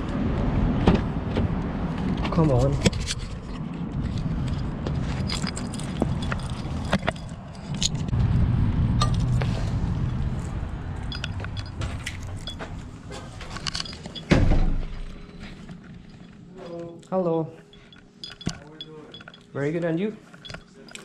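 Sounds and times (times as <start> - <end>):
low rumble of movement: 0.0 - 19.6
keys jingling: 3.0 - 8.1, 10.0 - 21.0.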